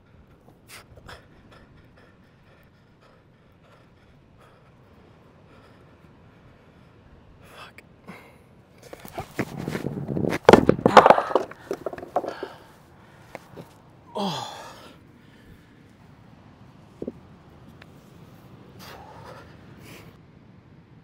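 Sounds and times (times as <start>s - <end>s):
hard breathing: 0.0s - 9.8s, 10.4s - 15.8s, 18.8s - 20.2s
boulder knocking and grinding on stone: 8.8s - 12.6s.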